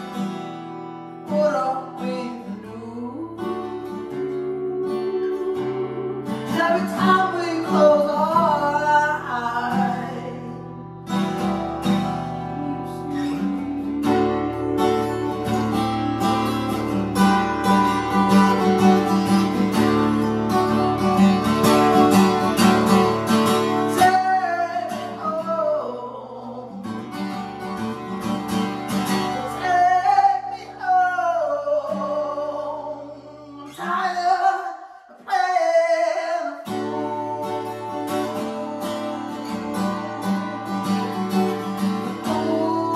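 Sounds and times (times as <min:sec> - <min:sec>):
acoustic guitar playing: 0:00.0 - 0:42.9
man singing long notes: 0:01.3 - 0:10.6, 0:12.2 - 0:16.8, 0:29.3 - 0:40.7, 0:42.2 - 0:42.9.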